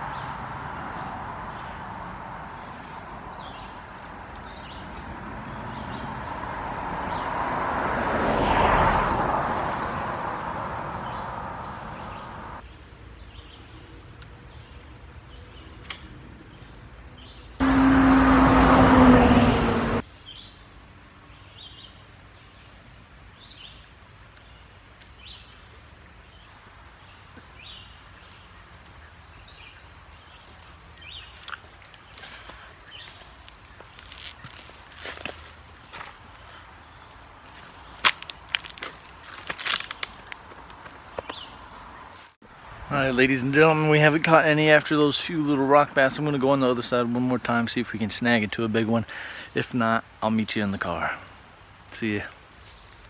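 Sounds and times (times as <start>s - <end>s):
vehicles passing: 0.0s - 53.0s
small birds chirping: 2.6s - 7.4s, 11.0s - 17.6s, 20.0s - 42.3s, 51.9s - 53.0s.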